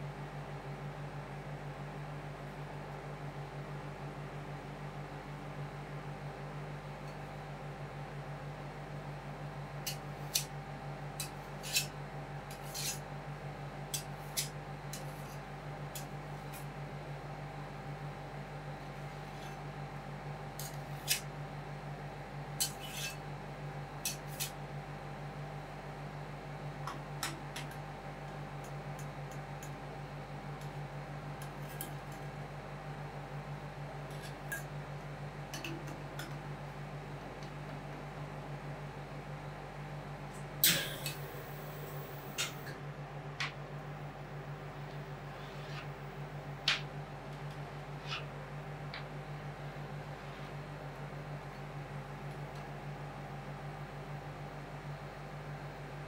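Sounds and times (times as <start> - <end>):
machine low hum: 0.0 - 56.0
metal spatulas tapping and scraping: 12.5 - 13.0, 22.6 - 23.2, 24.0 - 24.5
machine humming: 40.6 - 49.6.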